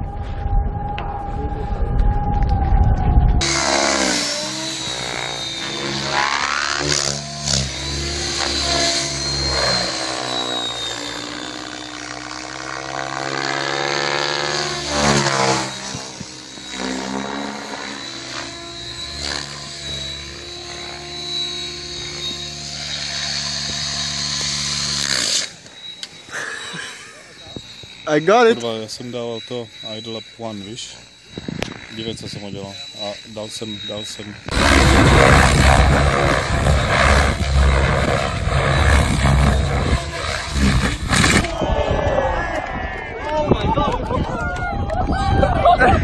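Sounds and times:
low rumble: 0:00.0 - 0:03.7, 0:34.5 - 0:42.4
model helicopter rotor and motor whine: 0:00.0 - 0:41.8, 0:42.4 - 0:46.0.

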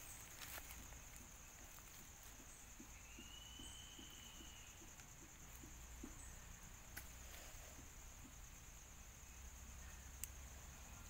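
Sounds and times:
high-pitched insect drone: 0:00.0 - 0:11.0
faint drawn-out whistle: 0:03.0 - 0:04.9.

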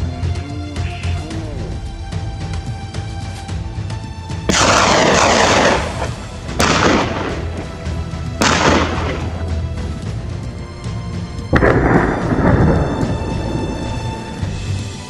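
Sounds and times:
background music: 0:00.0 - 0:15.0
loud gunshots with echo: 0:04.5 - 0:09.6, 0:11.6 - 0:13.3.

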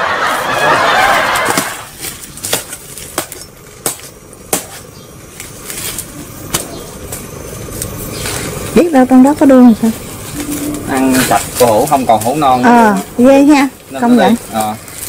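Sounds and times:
machete chopping: 0:01.4 - 0:04.9
palm fronds rustling and tearing: 0:01.4 - 0:08.8, 0:09.7 - 0:15.0.

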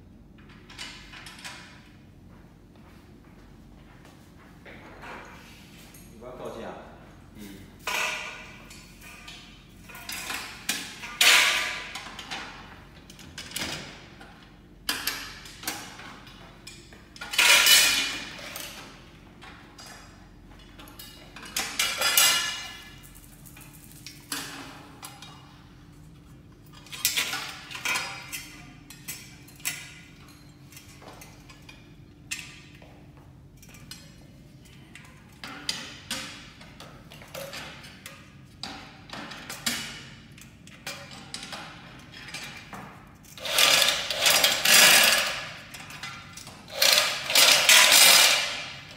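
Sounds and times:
metal parts clanking: 0:07.8 - 0:14.0, 0:14.9 - 0:20.1, 0:20.8 - 0:25.6, 0:33.6 - 0:48.9.

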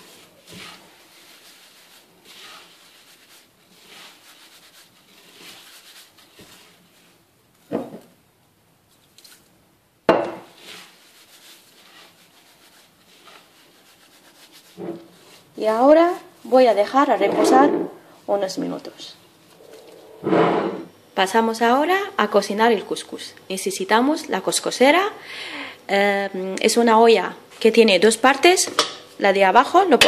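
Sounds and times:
grains rubbed with soft swishing: 0:00.0 - 0:07.3, 0:10.5 - 0:17.4, 0:18.2 - 0:20.4.

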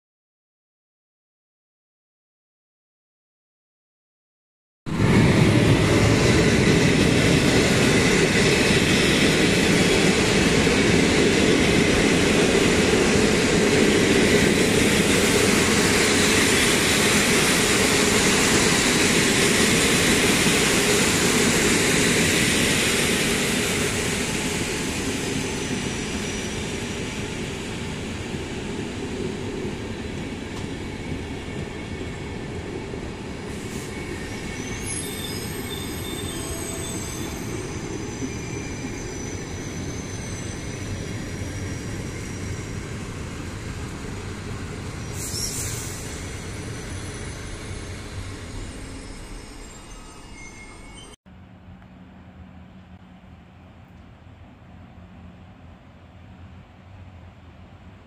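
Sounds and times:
train wheels rumbling on rails: 0:04.9 - 0:58.0
brakes squealing: 0:44.8 - 0:51.2.

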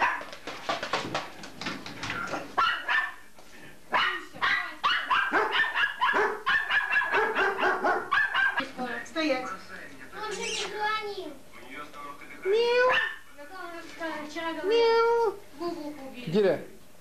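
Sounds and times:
dog barking: 0:00.0 - 0:00.3, 0:02.6 - 0:03.2, 0:03.9 - 0:08.6, 0:12.9 - 0:13.2.

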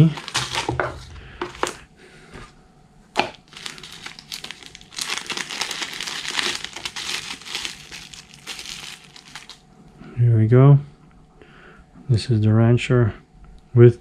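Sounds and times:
bubble wrap and plastic crinkling: 0:00.0 - 0:01.8, 0:03.2 - 0:09.6.

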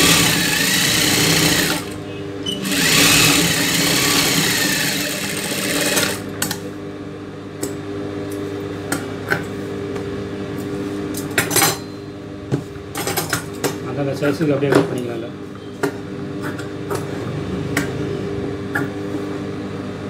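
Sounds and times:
sewing machine stitching: 0:00.0 - 0:01.9, 0:02.5 - 0:06.2
motor humming quietly: 0:00.0 - 0:11.3.

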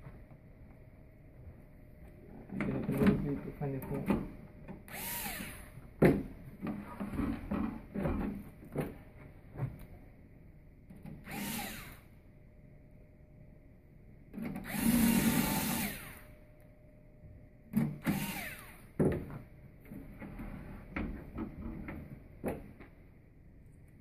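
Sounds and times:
cordless screwdriver driving screws: 0:04.9 - 0:05.7, 0:11.3 - 0:12.0, 0:18.0 - 0:18.8.

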